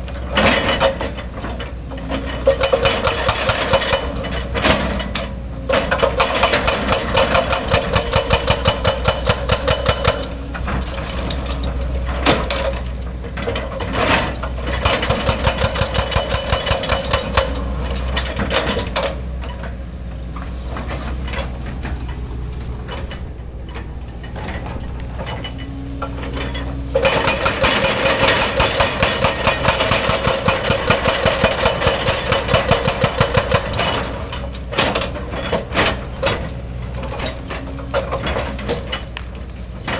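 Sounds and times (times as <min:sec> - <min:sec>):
diesel engine running: 0:00.0 - 0:39.9
hydraulic breaker hammering rock: 0:02.0 - 0:19.2, 0:24.3 - 0:39.9.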